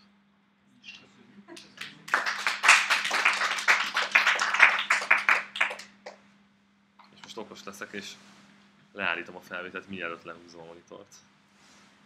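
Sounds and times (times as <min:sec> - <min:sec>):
audience applauding: 0:01.6 - 0:06.2.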